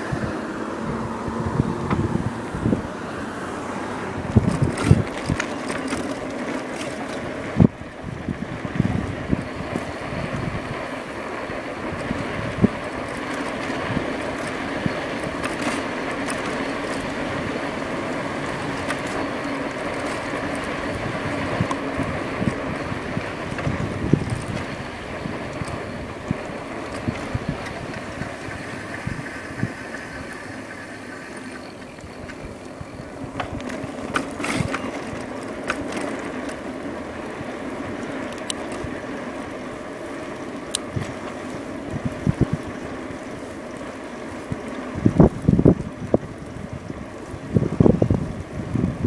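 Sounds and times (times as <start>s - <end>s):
wind on microphone: 0.0s - 30.9s, 40.7s - 43.0s, 44.4s - 49.0s
electric bike drivetrain hum: 0.0s - 49.0s.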